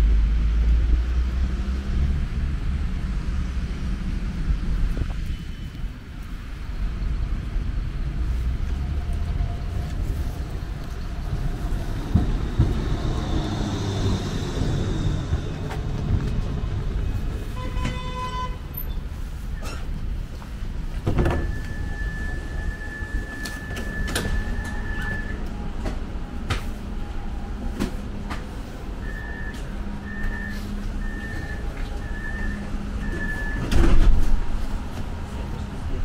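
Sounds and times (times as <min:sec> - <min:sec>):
tram hum and rumble: 0:00.0 - 0:36.0
high door warning beep: 0:21.2 - 0:25.4, 0:29.0 - 0:34.0.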